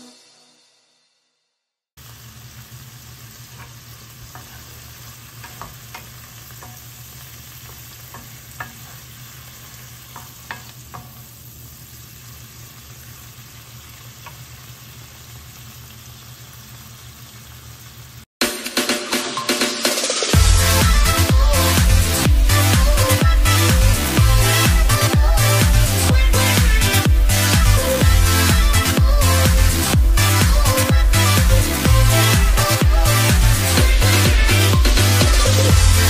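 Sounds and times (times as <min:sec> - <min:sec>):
vegetables sizzling in oil: 0:02.0 - 0:18.3
wooden spatula scraping a pan: 0:03.5 - 0:11.2.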